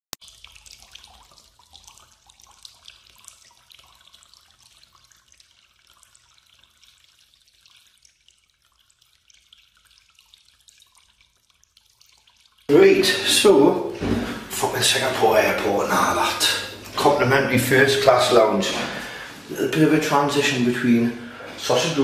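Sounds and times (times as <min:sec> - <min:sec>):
water trickling and dripping: 0:00.1 - 0:22.0.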